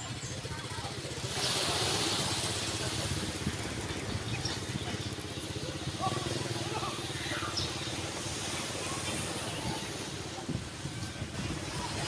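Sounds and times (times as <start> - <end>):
motorcycle engine idling: 0.0 - 1.2, 2.5 - 9.1
street noise: 0.0 - 12.0.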